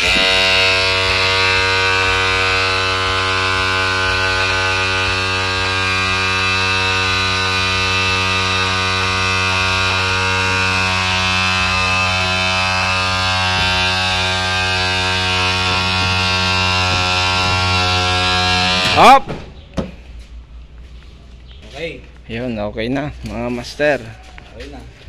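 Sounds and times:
electric motor buzzing hum: 0.0s - 19.1s.

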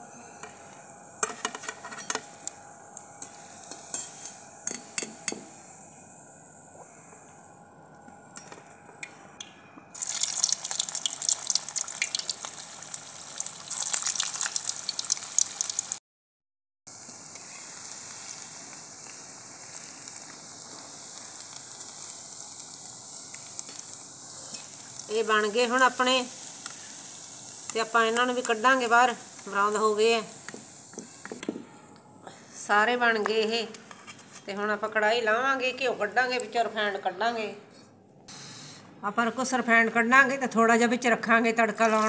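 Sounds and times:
food deep-frying in oil: 9.9s - 16.0s, 16.9s - 31.3s.

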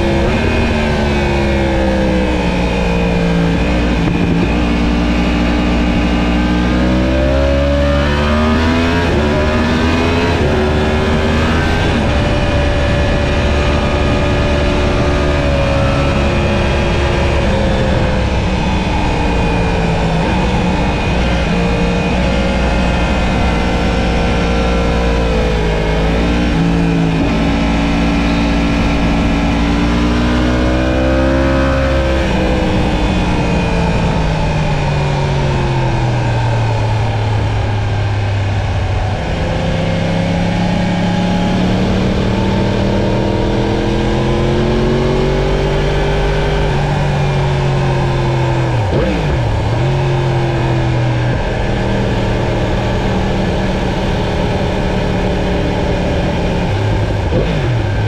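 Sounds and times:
motorcycle engine revving: 0.0s - 58.0s
wind rush: 0.0s - 58.0s.

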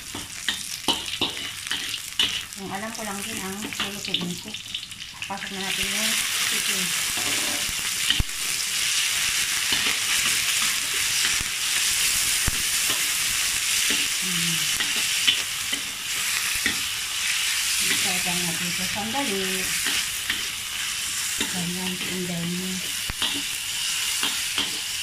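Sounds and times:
spatula scraping a wok: 0.0s - 2.6s, 7.0s - 8.2s, 8.8s - 25.0s
chicken sizzling in oil: 0.0s - 25.0s
spatula clicking on pan: 23.1s - 23.4s.

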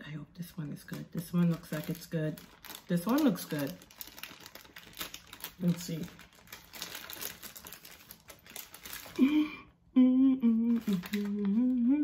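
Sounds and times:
plastic packaging crinkling: 0.4s - 9.5s, 10.5s - 11.9s
woman humming: 9.2s - 12.0s.

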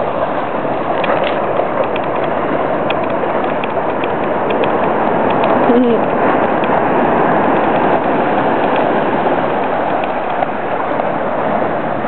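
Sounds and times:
beach surf: 0.0s - 12.0s
wind: 0.0s - 12.0s.

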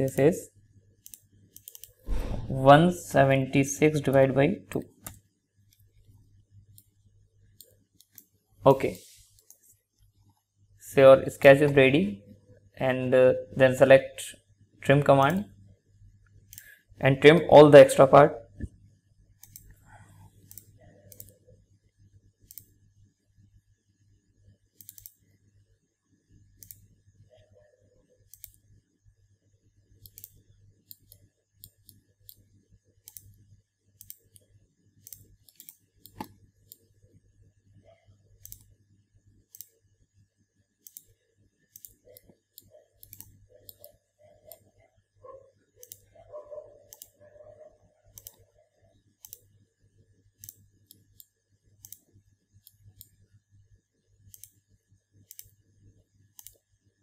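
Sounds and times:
low electrical hum: 0.0s - 57.0s
computer mouse clicking: 1.0s - 2.3s, 4.1s - 5.9s, 7.6s - 8.3s, 19.4s - 19.8s, 20.4s - 21.4s, 22.4s - 22.7s, 24.8s - 25.2s, 26.6s - 26.9s, 28.2s - 28.7s, 30.0s - 33.4s, 34.0s - 36.9s, 38.4s - 38.7s, 39.5s - 39.8s, 40.8s - 44.8s, 45.8s - 46.2s, 46.9s - 47.2s, 48.1s - 48.5s, 49.2s - 49.5s, 50.4s - 53.2s, 54.3s - 54.6s, 55.2s - 55.6s, 56.3s - 56.6s.

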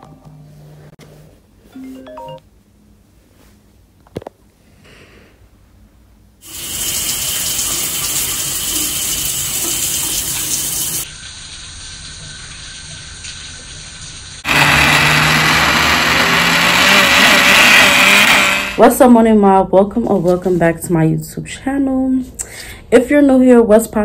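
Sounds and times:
blender running: 6.4s - 8.3s, 14.4s - 18.8s
shower water running: 6.4s - 14.5s.

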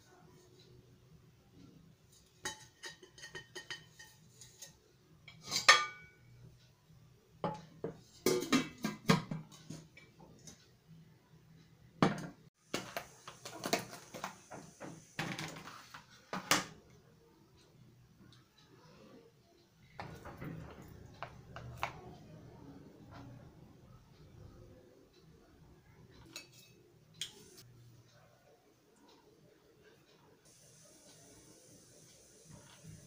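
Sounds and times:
pot knocks and clinks: 2.4s - 4.2s, 20.0s - 21.9s.

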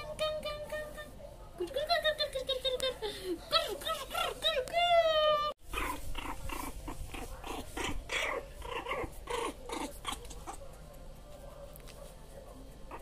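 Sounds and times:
puppy whimpering and growling: 3.4s - 10.6s.

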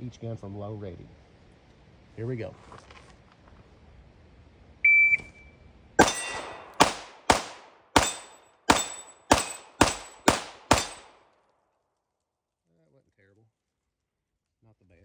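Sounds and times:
shot timer beep: 4.9s - 5.5s
steel plate ringing: 6.0s - 6.8s, 8.0s - 11.1s
pistol shots: 6.0s - 11.2s.

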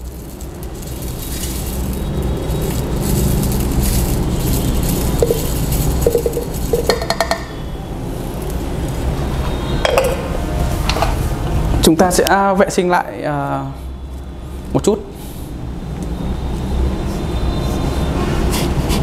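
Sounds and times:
salt grains pouring through funnel: 0.0s - 7.4s
glass clinking against funnel: 5.2s - 7.6s, 9.8s - 10.4s.

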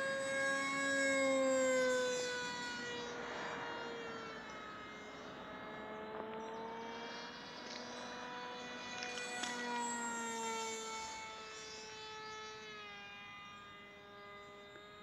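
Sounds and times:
model jet plane whining overhead: 0.0s - 15.0s.

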